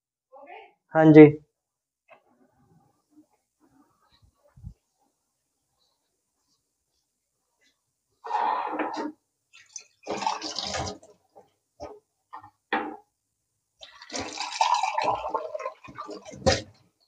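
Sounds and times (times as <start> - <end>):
tap water splashing on dishes: 9.5 - 12.5, 13.8 - 16.8.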